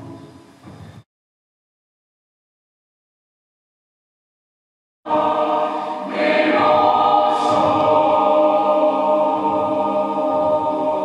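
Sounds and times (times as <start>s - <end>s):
choral singing: 0.0s - 0.4s, 5.1s - 11.0s.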